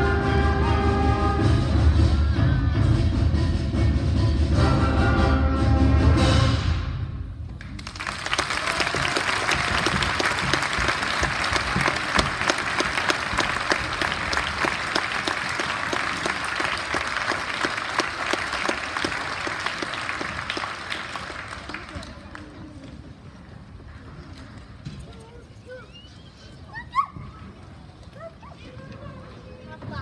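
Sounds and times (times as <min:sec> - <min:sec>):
audience clapping: 0:07.6 - 0:23.0.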